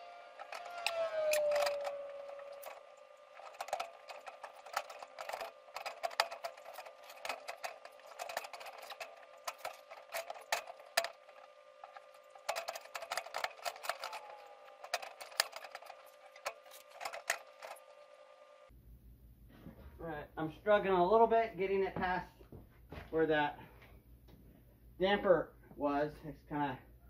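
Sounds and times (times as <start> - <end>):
metal chimney liner rattling: 0.0 - 18.2.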